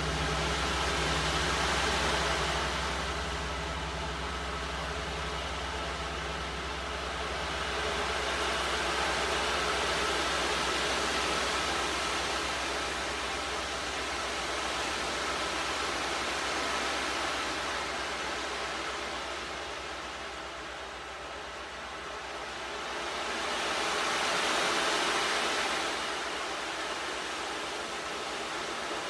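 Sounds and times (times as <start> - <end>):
large gongs shimmering: 0.0 - 22.5.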